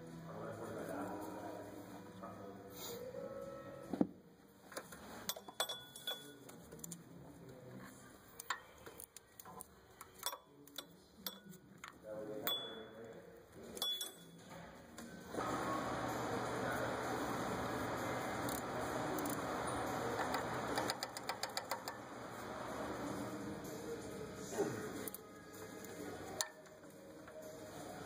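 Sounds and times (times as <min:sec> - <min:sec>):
metal tools clinking: 0:05.3 - 0:06.4, 0:13.8 - 0:14.4
ratchet wrench clicking: 0:19.2 - 0:19.4, 0:20.2 - 0:22.0.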